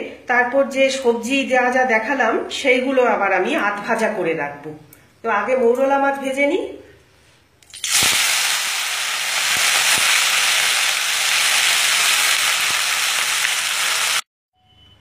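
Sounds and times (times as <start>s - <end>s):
fish sizzling in hot oil: 7.7s - 14.3s.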